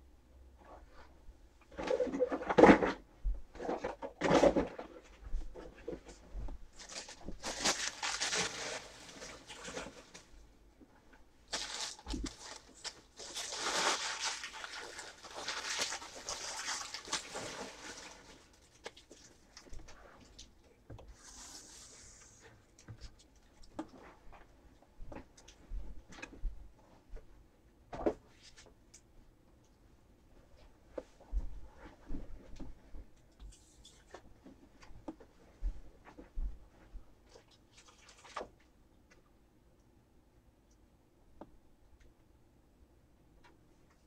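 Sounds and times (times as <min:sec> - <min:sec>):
rustling: 0:01.7 - 0:10.4.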